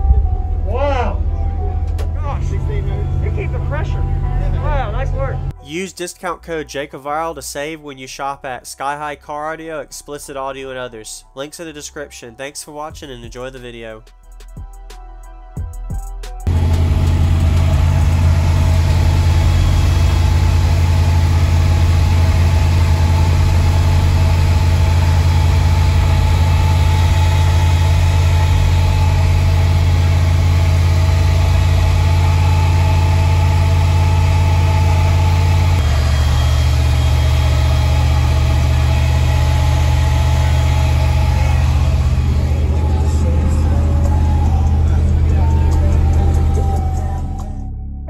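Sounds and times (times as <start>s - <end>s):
subwoofer bass tone: 0.0s - 5.6s, 16.4s - 48.0s.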